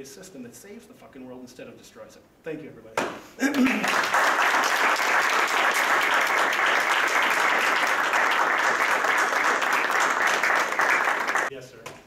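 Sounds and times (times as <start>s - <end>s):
audience applauding: 3.5s - 11.5s.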